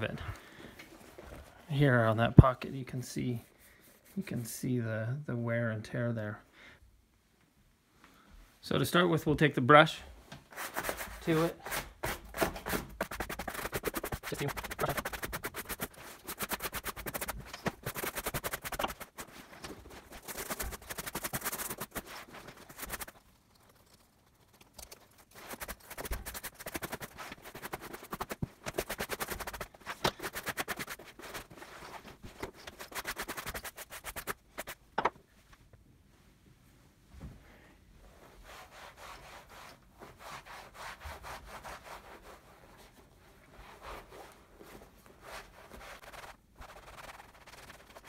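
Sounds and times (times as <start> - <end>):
brush scrubbing leather: 12.7 - 34.8, 45.2 - 48.0.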